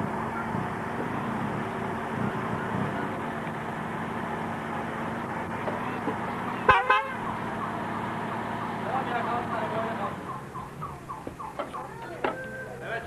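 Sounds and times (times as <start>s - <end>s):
outdoor background noise: 0.0s - 13.0s
car horn tooting: 6.6s - 7.2s.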